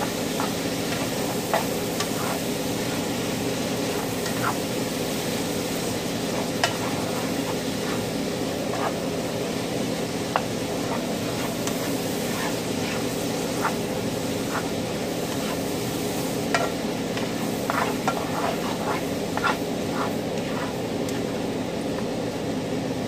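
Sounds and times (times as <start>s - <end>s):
spatula scraping and tapping pan: 0.0s - 4.8s, 6.3s - 9.1s, 10.3s - 15.7s, 16.4s - 21.4s
meat and vegetables sizzling: 0.0s - 22.0s.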